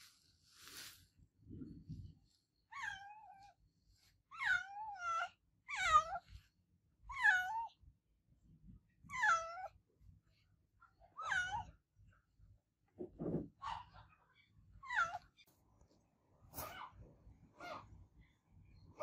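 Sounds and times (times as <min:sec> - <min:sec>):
cat meowing: 0:04.3 - 0:06.2, 0:09.1 - 0:09.8, 0:11.1 - 0:11.8, 0:14.8 - 0:15.4.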